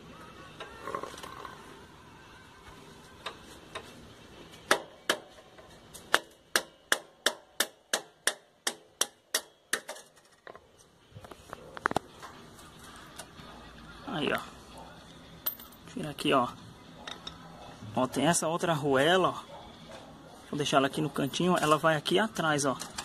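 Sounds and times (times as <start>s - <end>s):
hammer striking metal: 6.1s - 10.0s.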